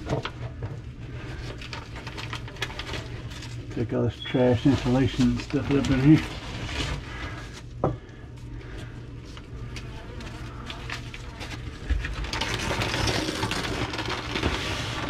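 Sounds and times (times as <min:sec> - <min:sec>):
insulation rustling and crackling: 0:00.0 - 0:15.0
steady low hum: 0:00.0 - 0:15.0.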